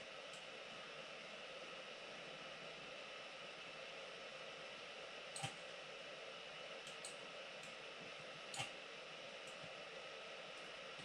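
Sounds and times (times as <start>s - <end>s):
computer mouse clicking: 5.4s - 5.6s, 6.8s - 7.8s, 8.5s - 8.8s.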